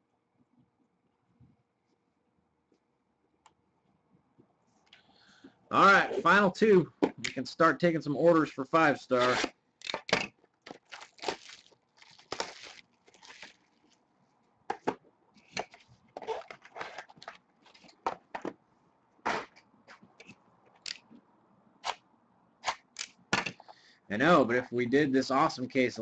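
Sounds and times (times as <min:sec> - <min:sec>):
card packaging crinkling: 0:10.7 - 0:14.0.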